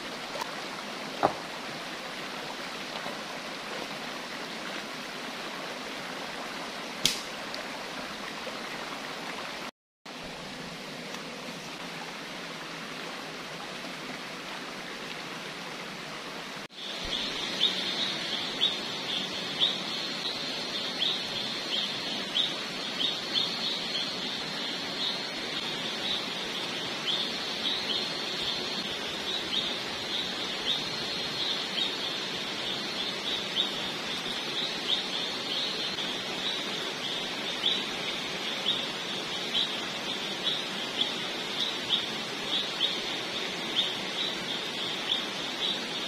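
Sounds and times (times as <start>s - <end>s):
steady hiss: 0.0s - 46.0s.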